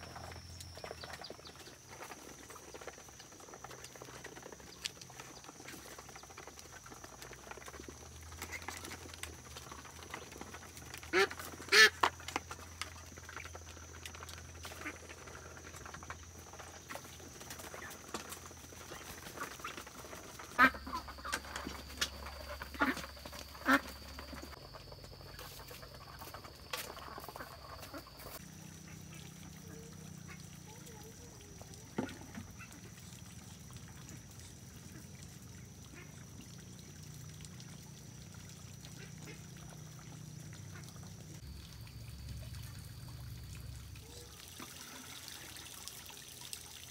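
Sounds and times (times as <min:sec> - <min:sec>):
ducks calling: 0:11.0 - 0:12.1, 0:18.8 - 0:24.6.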